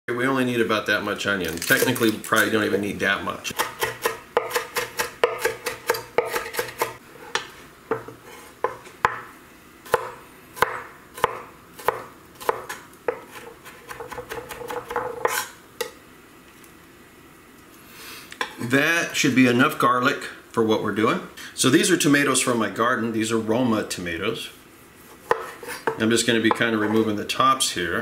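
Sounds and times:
knife chopping on wooden board: 3.5 - 9.2, 9.9 - 15.4, 25.2 - 26.0.

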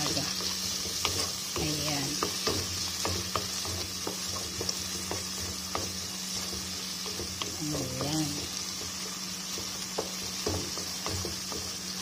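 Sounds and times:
vegetables sizzling in oil: 0.0 - 12.0
wooden spoon knocking on pot: 0.0 - 12.0.

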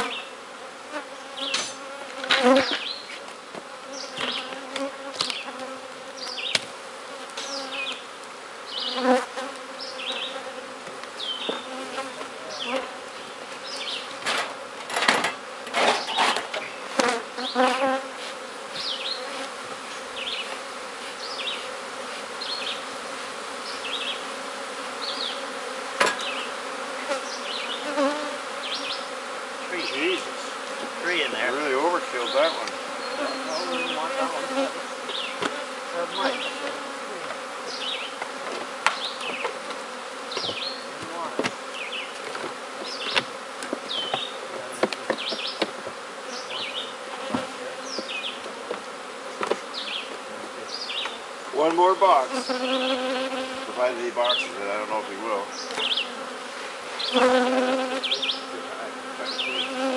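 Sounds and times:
honeybees buzzing: 0.0 - 59.9
knocks and clatters of hive work: 1.3 - 54.6, 55.6 - 59.9.

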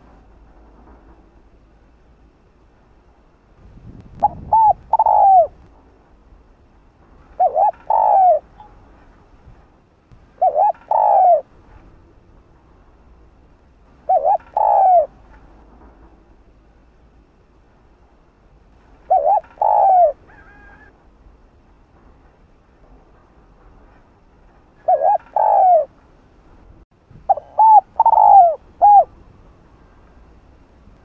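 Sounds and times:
dove cooing: 4.2 - 5.6, 7.3 - 8.8, 10.4 - 11.5, 14.0 - 15.2, 19.1 - 21.0, 24.8 - 26.0, 27.3 - 29.2.

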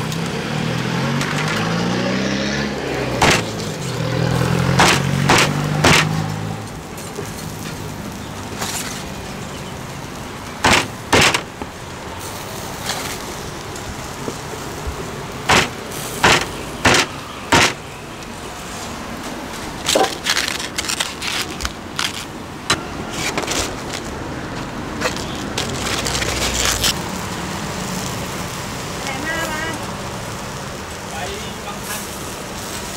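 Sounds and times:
traffic noise: 0.0 - 32.9
leaf crinkling: 2.8 - 32.9
cleaver chopping on wooden block: 3.2 - 3.5, 4.8 - 6.2, 10.7 - 11.5, 15.5 - 17.8.

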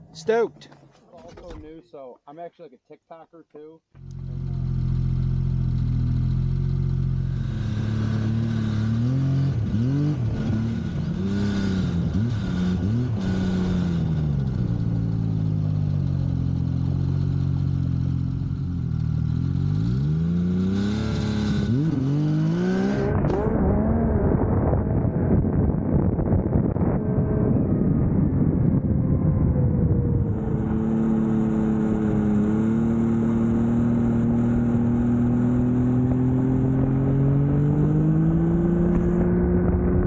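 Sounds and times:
snowmobile engine revving: 4.1 - 14.7, 19.4 - 24.8, 30.4 - 40.0.

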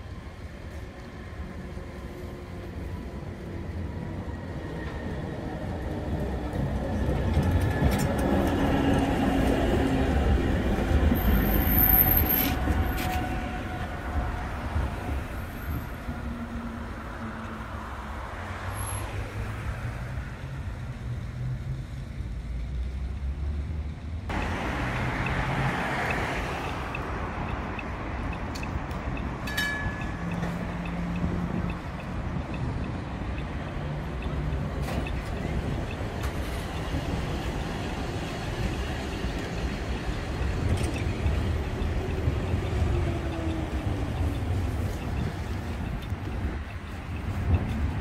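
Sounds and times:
tram rumbling on rails: 0.0 - 48.0
tram wheel squeal: 3.4 - 16.9, 25.2 - 48.0.

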